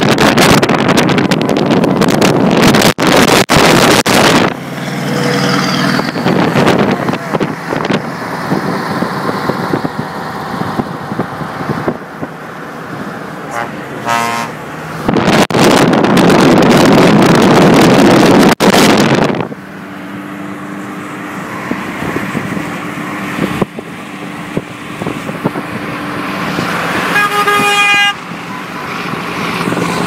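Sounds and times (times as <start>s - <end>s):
engine and tyre hum: 0.0s - 30.0s
traffic noise: 0.0s - 30.0s
wind rushing: 0.0s - 30.0s
car horn: 13.5s - 14.6s, 27.0s - 29.0s.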